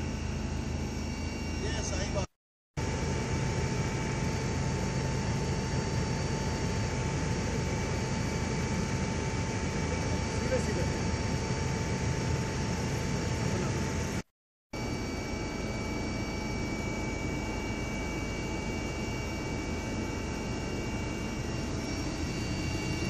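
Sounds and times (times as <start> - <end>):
aircraft engine roar in cabin: 0.0 - 23.0
high whining tones: 14.8 - 23.0.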